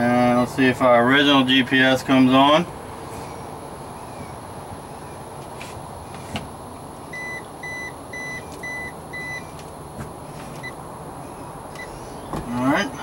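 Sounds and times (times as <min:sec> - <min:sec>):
short electronic beeps: 0:07.1 - 0:09.4.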